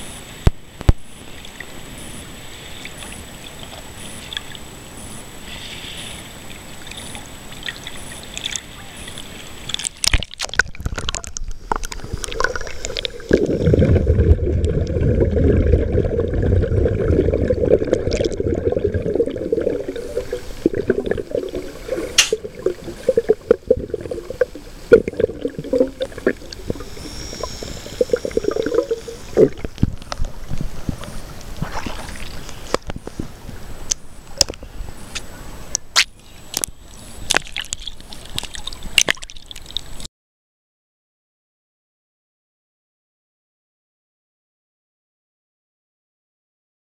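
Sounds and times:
water splashes and droplets: 0:06.4 - 0:33.1, 0:35.7 - 0:40.1
seawater sloshing and gurgling: 0:06.6 - 0:33.4.

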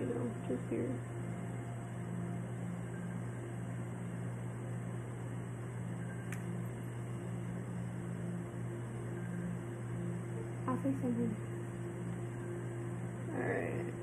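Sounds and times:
low hum of appliance: 0:00.0 - 0:14.0
light click: 0:06.2 - 0:06.5.

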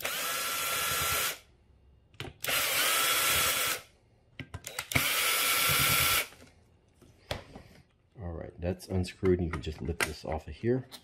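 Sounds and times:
cordless drill whining: 0:00.0 - 0:01.4, 0:02.4 - 0:03.9, 0:04.6 - 0:06.4.

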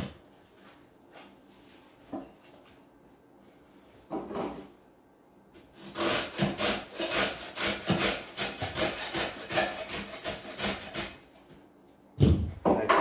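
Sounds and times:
hacksaw sawing rope: 0:05.8 - 0:11.2.

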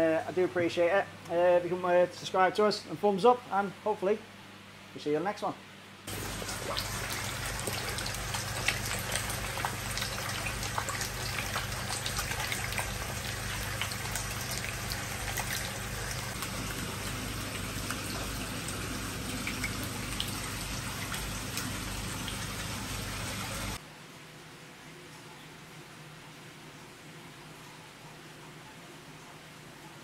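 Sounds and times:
fish splashing and popping: 0:06.1 - 0:22.6
rushing water: 0:06.1 - 0:23.8.

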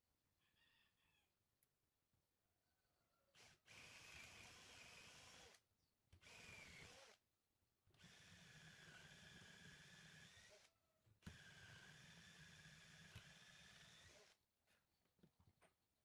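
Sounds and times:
cordless drill boring into wood: 0:03.3 - 0:05.6, 0:06.2 - 0:07.2, 0:08.0 - 0:14.4.

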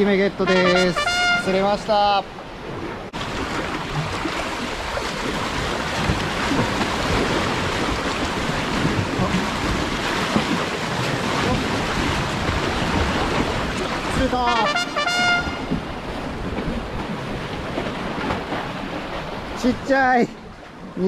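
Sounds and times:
sea waves splashing on concrete: 0:03.0 - 0:20.8.

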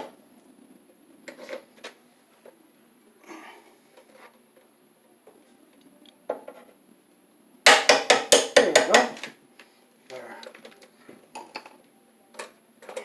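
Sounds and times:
sharp metal knocks: 0:07.7 - 0:09.2.

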